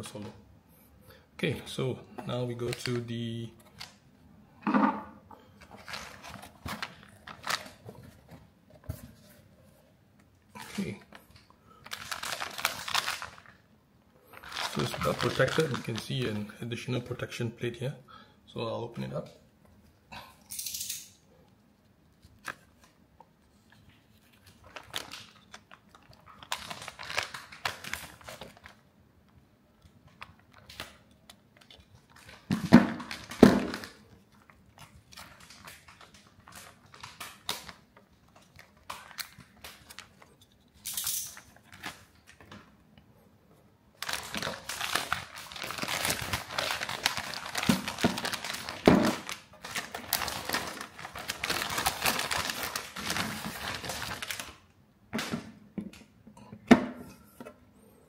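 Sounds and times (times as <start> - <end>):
plastic bags rustling: 5.6 - 9.3, 10.6 - 16.4, 24.1 - 28.8, 32.0 - 42.6, 44.0 - 54.7.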